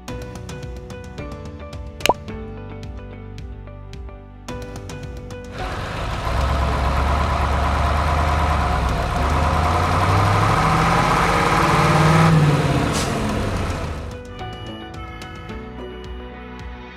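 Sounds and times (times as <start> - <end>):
truck engine revving: 5.6 - 14.2.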